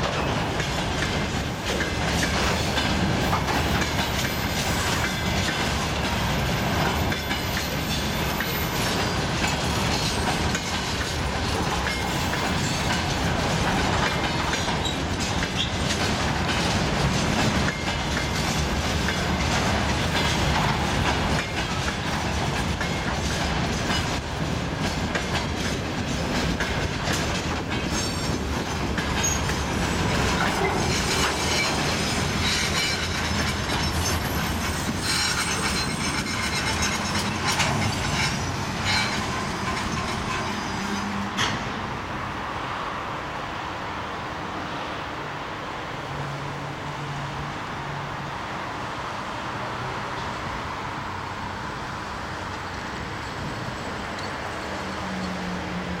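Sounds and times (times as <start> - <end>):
train wheels clacking over rail joints: 0.0 - 41.8
train wheel squeal: 1.8 - 13.2, 14.0 - 16.1, 27.8 - 41.6, 53.2 - 55.8.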